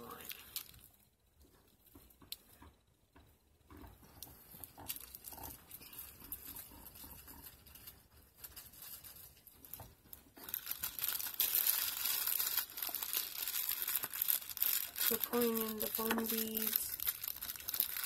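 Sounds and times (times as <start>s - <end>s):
plastic bag crinkling: 0.0s - 1.0s, 4.6s - 18.0s.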